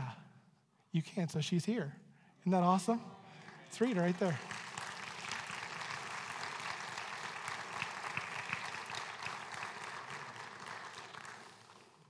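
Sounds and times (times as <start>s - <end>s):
congregation applauding: 3.4s - 12.0s.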